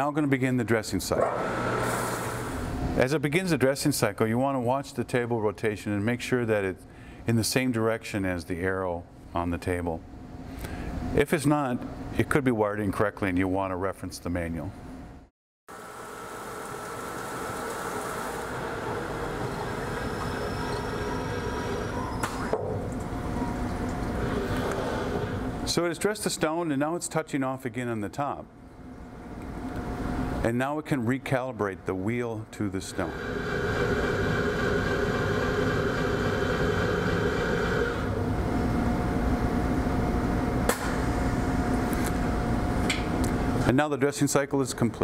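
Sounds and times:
faint high whine: 18.1s - 22.4s
grinding wheel dressing stone: 33.0s - 38.1s.

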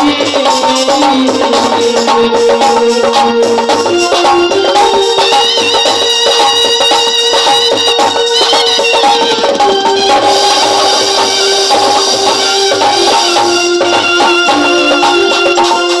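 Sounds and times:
drums and small percussion: 0.0s - 16.0s
held melody notes: 0.0s - 16.0s.

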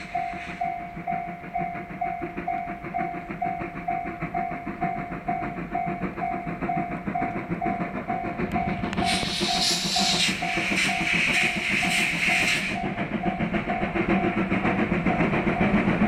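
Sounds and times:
level crossing warning bell: 0.0s - 10.6s
steam locomotive exhaust beats: 0.0s - 16.0s.

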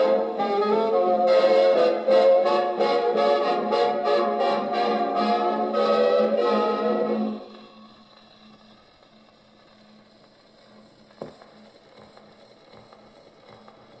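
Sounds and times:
band music on gramophone: 0.0s - 7.5s.

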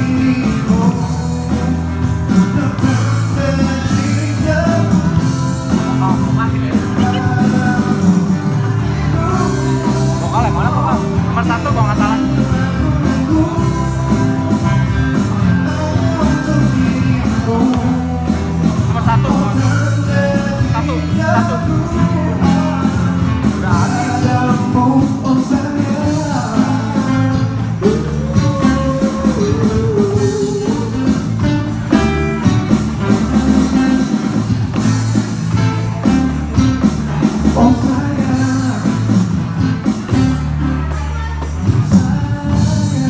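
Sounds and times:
person singing: 0.0s - 34.9s, 37.2s - 43.0s
acoustic guitar: 0.0s - 43.0s
electronic drum kit: 0.0s - 43.0s.

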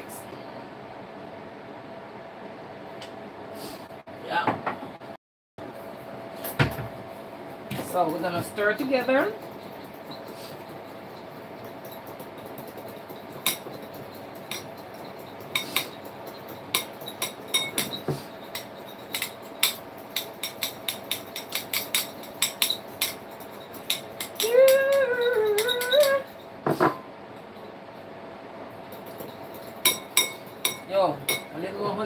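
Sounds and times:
metal spoon clinking against bowl: 8.6s - 26.6s, 28.9s - 31.6s
person humming: 24.4s - 26.4s.

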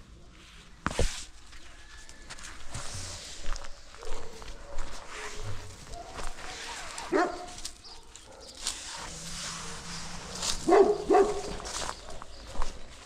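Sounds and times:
dog barking: 4.0s - 8.6s, 10.6s - 12.2s.

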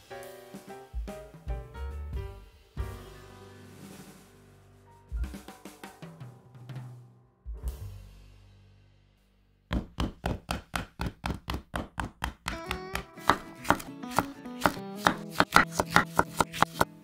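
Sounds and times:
light background music: 0.0s - 8.4s, 12.5s - 17.0s
knife chopping on wooden board: 9.7s - 17.0s.

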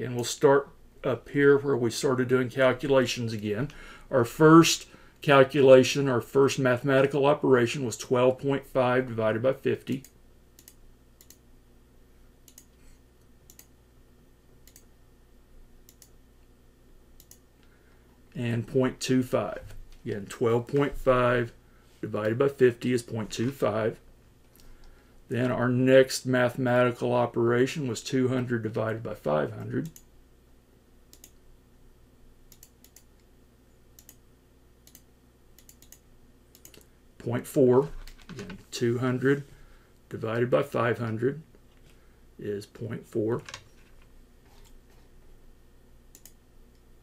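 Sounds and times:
low steady hum: 0.0s - 47.0s
faint computer mouse clicks: 10.0s - 11.4s, 12.5s - 12.8s, 13.5s - 13.7s, 14.6s - 14.9s, 15.9s - 16.2s, 17.2s - 17.4s, 32.5s - 33.3s, 34.8s - 36.9s, 46.1s - 46.8s
faint sharp clicks: 46.1s - 46.8s.

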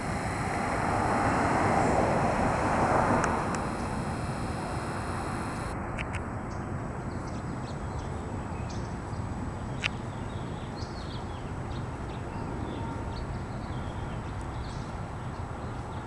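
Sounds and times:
outdoor background rumble: 0.0s - 5.8s.

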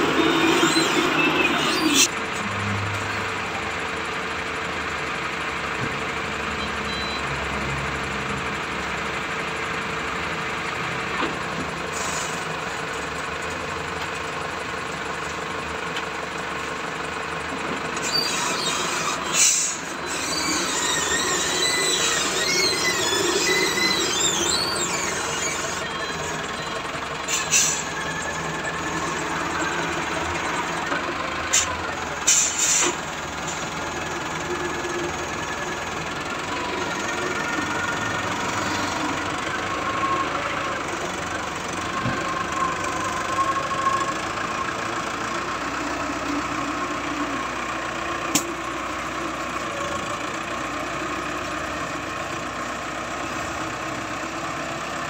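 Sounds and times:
high wavering squeal: 0.0s - 2.1s, 18.0s - 30.9s
diesel engine running: 0.0s - 55.0s.

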